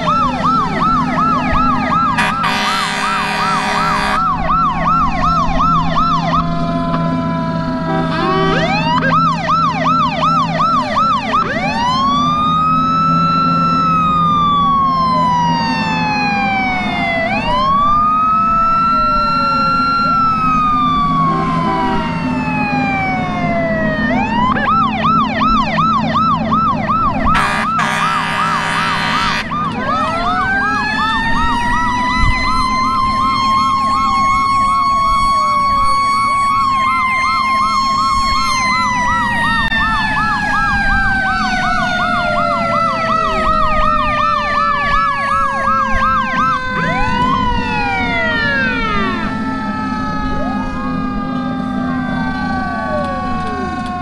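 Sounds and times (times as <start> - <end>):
fast-warbling siren: 0.0 - 54.0
fire engine siren wailing: 0.0 - 54.0
horn blast: 2.2 - 4.3, 7.8 - 8.8, 27.3 - 29.6.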